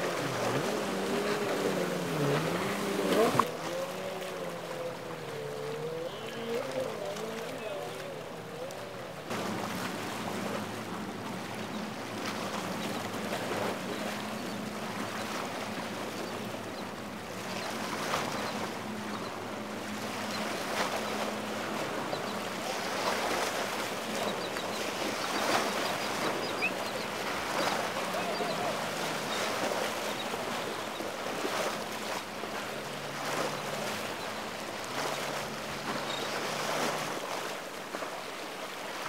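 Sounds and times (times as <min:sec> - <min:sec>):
boat engine running: 0:00.0 - 0:39.0
choppy water rushing: 0:00.0 - 0:39.0
waves slapping and splashing: 0:00.0 - 0:39.0.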